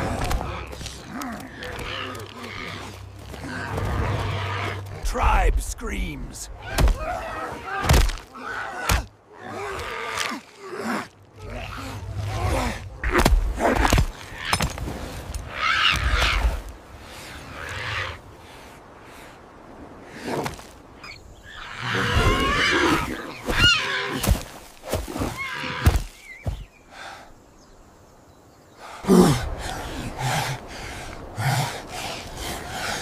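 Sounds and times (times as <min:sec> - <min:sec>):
animal cries and grunts: 0:00.0 - 0:05.1, 0:21.0 - 0:24.4.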